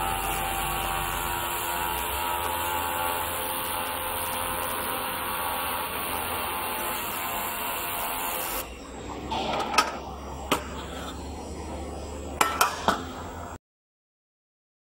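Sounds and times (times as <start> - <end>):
laser welder hissing: 0.0 - 9.1.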